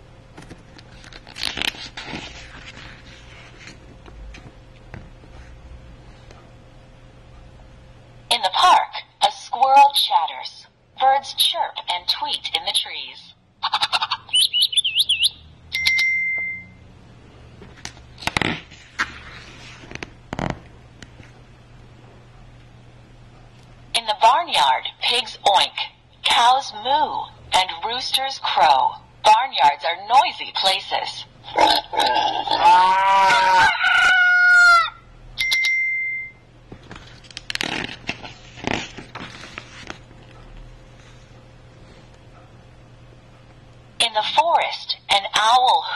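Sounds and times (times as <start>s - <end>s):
page turning rustle and click: 0.4s - 4.5s, 17.6s - 21.4s, 36.7s - 40.4s
recorded bird chirps: 14.2s - 15.5s
short ringing tone: 15.7s - 16.9s, 35.4s - 36.5s
recorded rooster crow: 32.6s - 35.1s.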